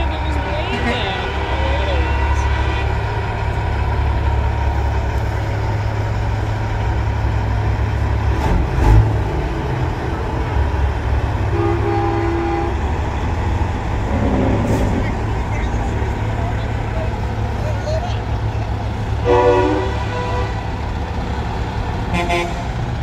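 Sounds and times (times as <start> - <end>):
truck horn: 0.0 - 3.5, 11.4 - 13.0, 19.1 - 21.0, 22.0 - 23.0
diesel trucks rumbling past: 0.0 - 23.0.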